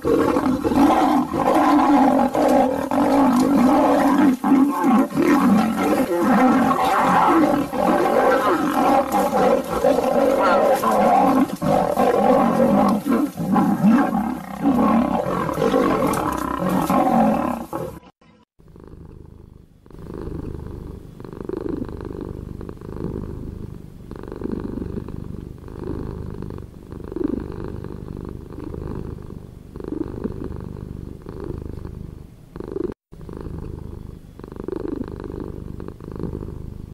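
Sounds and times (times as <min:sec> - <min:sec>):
deep cat purr: 0:00.0 - 0:18.0, 0:18.6 - 0:36.9
lion roaring: 0:00.0 - 0:18.1.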